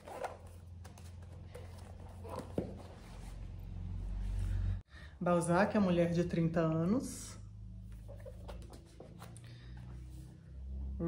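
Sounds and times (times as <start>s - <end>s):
book rustling: 0.0s - 3.6s, 7.9s - 10.4s.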